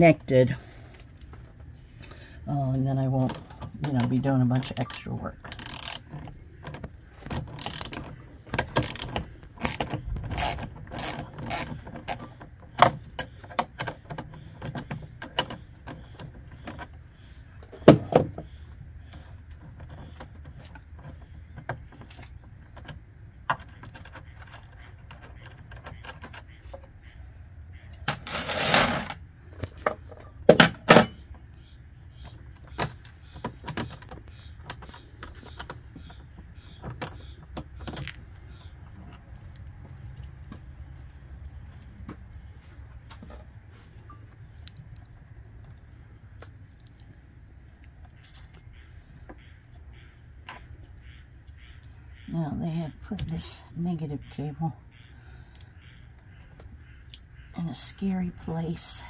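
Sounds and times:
scraping rustle: 28.1s - 29.8s.

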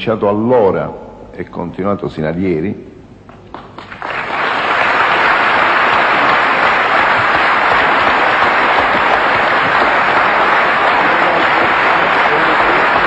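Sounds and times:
audience applause: 3.5s - 13.0s.

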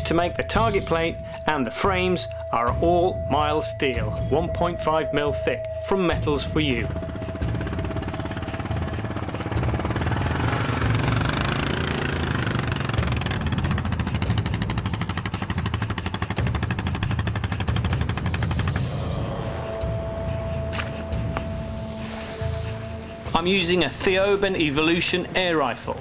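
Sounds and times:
quad bike engine putter: 7.4s - 18.9s.

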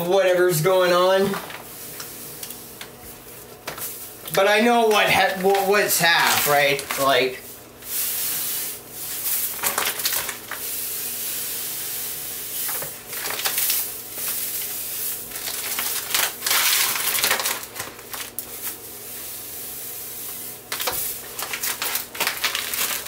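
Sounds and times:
paper bag rustling: 0.9s - 7.6s, 9.1s - 10.7s, 12.7s - 18.8s, 20.7s - 23.0s.

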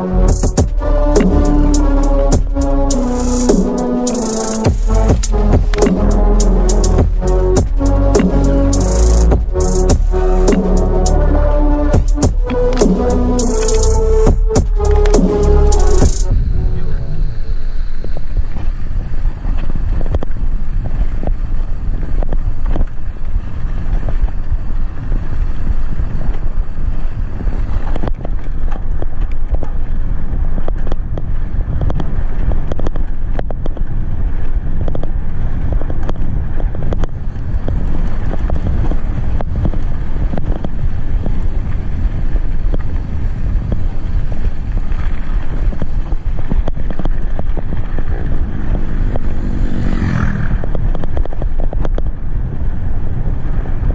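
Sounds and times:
wind buffeting microphone: 16.0s - 53.9s
bike knocking and rattling: 45.8s - 52.2s
tyres rumbling on dirt road: 46.7s - 52.6s.

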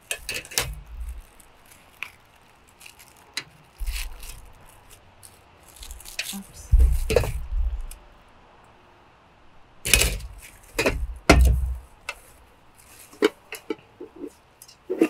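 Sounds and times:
packaging rustling: 0.0s - 8.0s, 10.0s - 13.4s.

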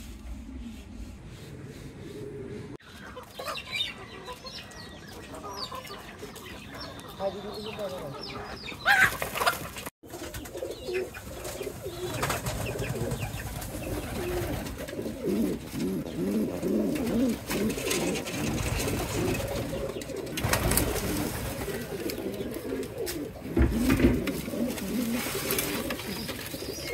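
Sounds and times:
pigeons cooing: 0.0s - 26.9s
knocks and rustles: 16.9s - 26.7s.

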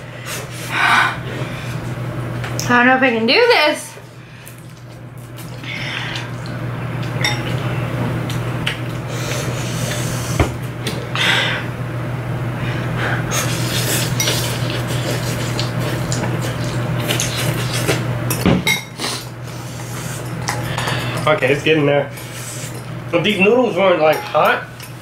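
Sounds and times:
forks clinking on ceramic bowls: 23.2s - 24.9s.

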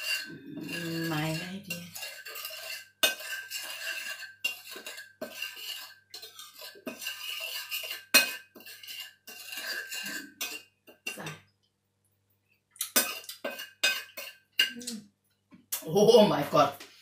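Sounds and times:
spoon scraping and clinking in bowl: 0.0s - 11.5s, 12.8s - 14.8s.

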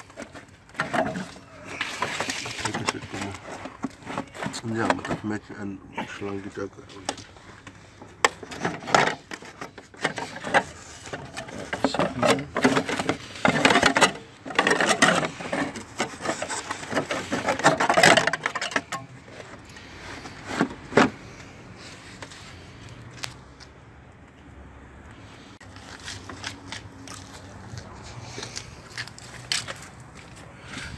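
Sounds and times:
plastic scraping and rubbing: 0.0s - 5.6s, 6.9s - 22.7s.

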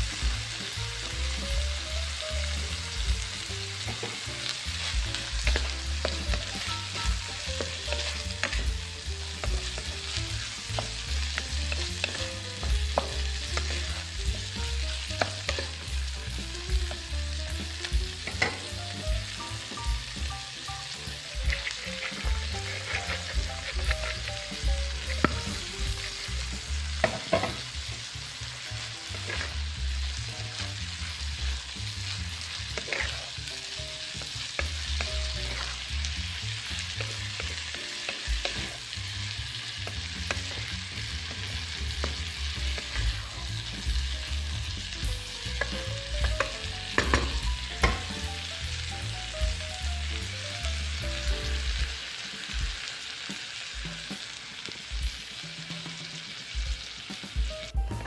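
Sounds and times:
food sizzling in a pan: 0.0s - 58.0s
utensil knocking against pan: 46.2s - 48.2s.

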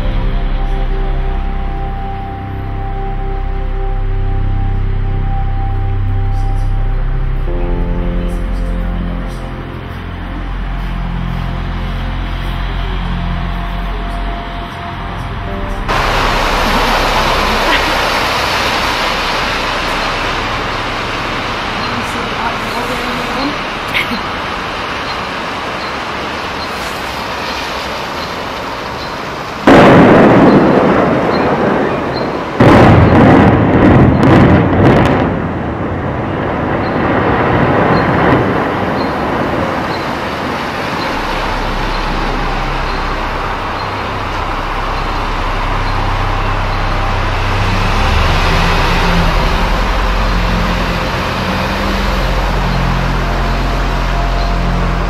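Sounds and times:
low rumble of building collapsing: 0.0s - 55.0s
loud explosive blast: 29.6s - 38.6s.

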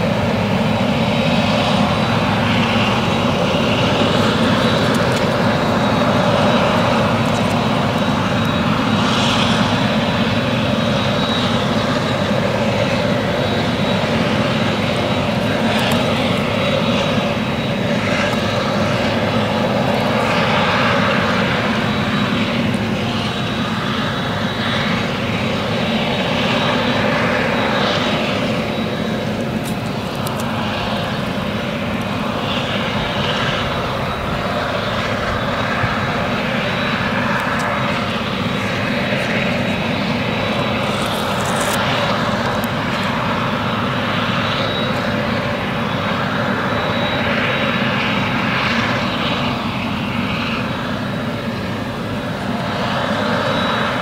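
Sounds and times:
forage harvester machine noise: 36.5s - 43.3s.

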